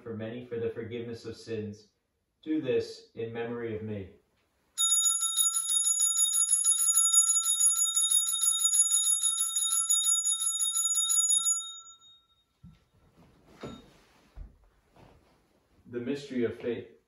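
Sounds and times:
altar bell ringing rapidly: 4.8s - 12.4s.

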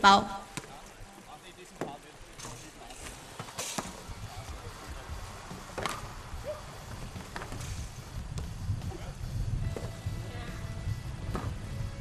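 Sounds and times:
wind rumble on microphone: 4.0s - 12.0s.

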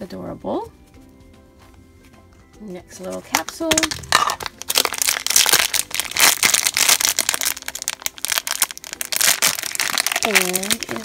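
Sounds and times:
foil wrapper crinkling: 3.2s - 11.0s.

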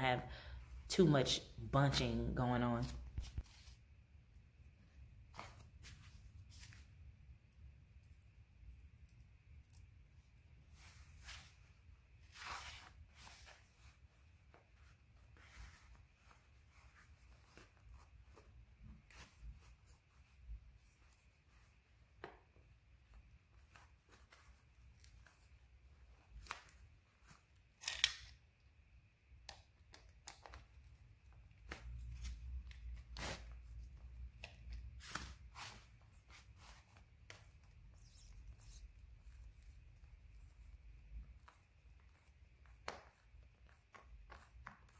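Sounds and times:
fabric rustling: 2.8s - 4.0s, 4.8s - 7.0s, 10.6s - 27.8s, 34.8s - 42.6s.

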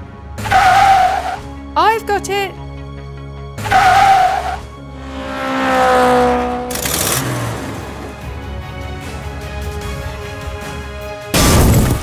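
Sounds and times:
background music: 0.0s - 12.0s
tyre screech: 0.4s - 1.4s, 3.6s - 4.7s
car engine sweeping past: 3.6s - 9.0s.

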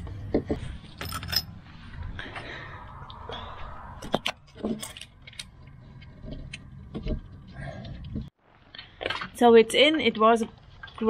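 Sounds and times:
small metal parts clinking: 0.9s - 1.6s, 4.6s - 5.6s.

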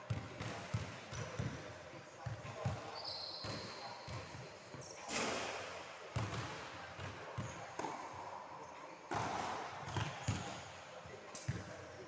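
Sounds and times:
tennis ball struck by racquets: 9.1s - 9.6s.

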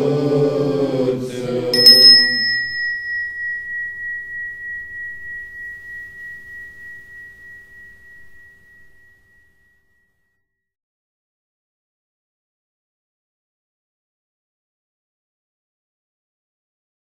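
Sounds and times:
chanted mantra: 0.0s - 3.2s
small metal bell ringing: 1.8s - 9.7s.

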